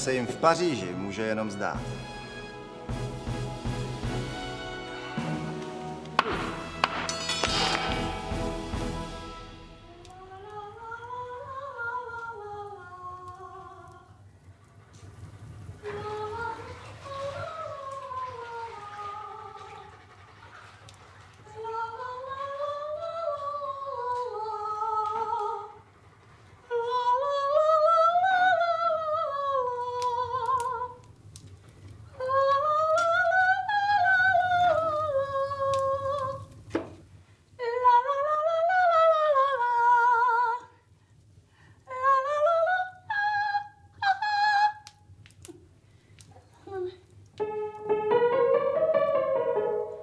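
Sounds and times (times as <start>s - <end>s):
woman singing vocal exercises: 10.1s - 14.1s, 26.7s - 31.0s, 32.1s - 36.5s, 37.6s - 40.8s.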